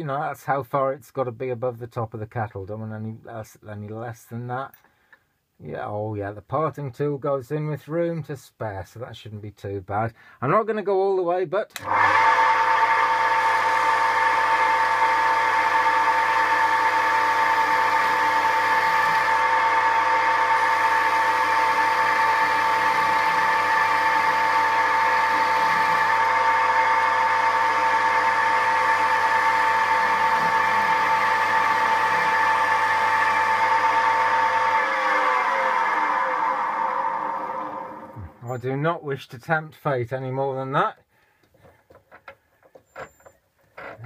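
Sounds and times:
wood lathe motor whine: 11.8 - 38.6.

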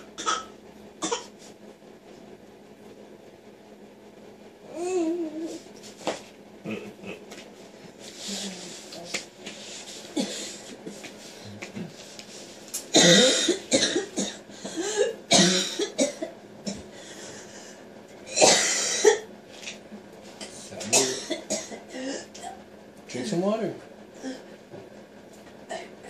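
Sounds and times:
person coughing: 0.0 - 1.4, 12.9 - 16.8, 18.3 - 19.3, 20.8 - 22.6.

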